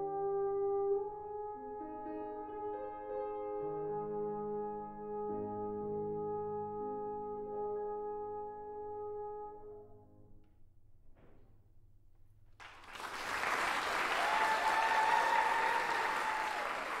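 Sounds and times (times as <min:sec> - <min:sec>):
french horn and piano: 0:00.0 - 0:10.7
audience applause: 0:12.6 - 0:17.0.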